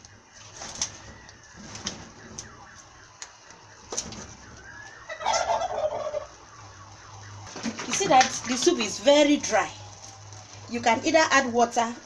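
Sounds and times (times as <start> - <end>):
fowl warbling call: 4.6 - 6.4.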